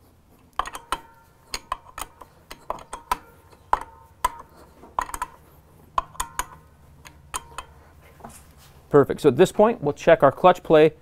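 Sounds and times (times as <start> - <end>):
socket wrench clicking: 0.5 - 5.4, 6.0 - 7.8.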